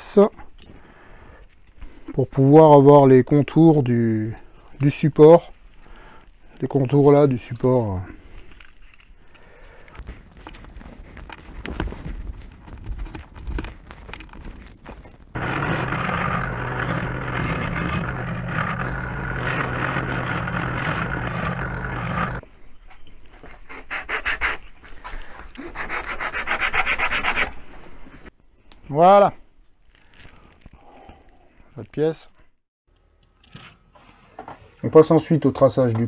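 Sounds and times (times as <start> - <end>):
wooden parts cracking apart: 10.0 - 22.4
bench power tool humming: 15.3 - 22.4
sanding block rubbing wood: 15.4 - 22.4, 25.6 - 27.5.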